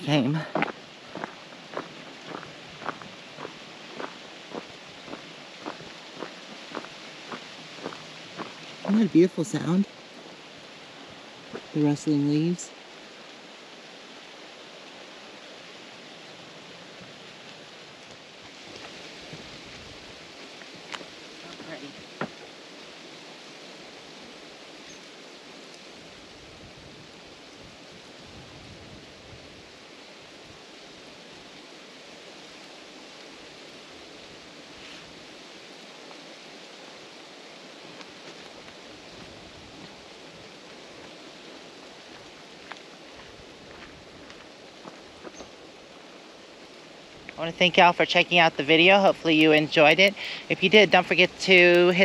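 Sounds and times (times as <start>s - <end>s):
wind rustling pine trees: 0.0s - 52.0s.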